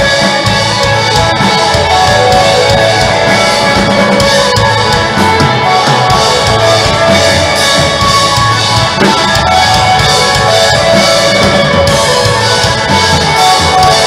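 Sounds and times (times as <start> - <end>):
drum kit: 0.0 - 14.0
electric guitars: 0.0 - 14.0.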